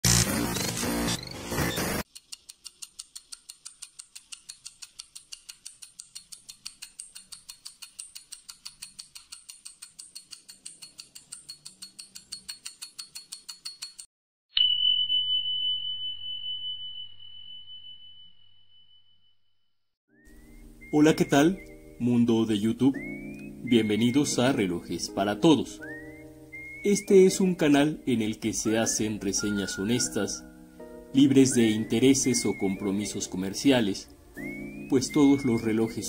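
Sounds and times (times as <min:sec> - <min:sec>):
loud static: 0:00.0 - 0:02.0
rapid clock ticking: 0:02.0 - 0:14.1
bell ding: 0:14.6 - 0:19.2.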